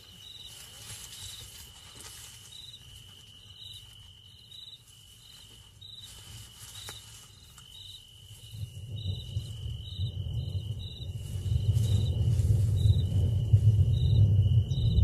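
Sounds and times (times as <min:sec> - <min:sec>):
high insect chirps: 0:00.0 - 0:15.0
insect trill: 0:00.0 - 0:15.0
faint low rumble: 0:08.3 - 0:15.0.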